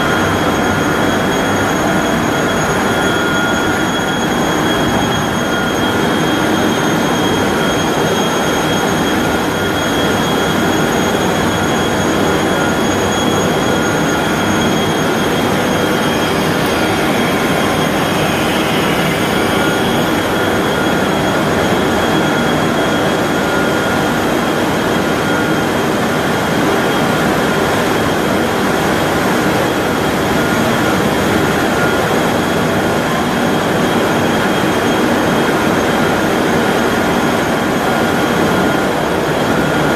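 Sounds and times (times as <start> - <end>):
high-pitched whines: 0.0 - 39.9
paper machine running: 15.0 - 20.6.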